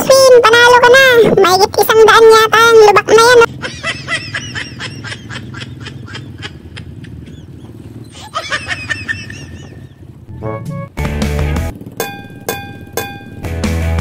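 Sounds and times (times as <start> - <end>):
motorcycle engine running: 2.1 - 14.0
high-pitched giggling laughter: 3.5 - 10.0.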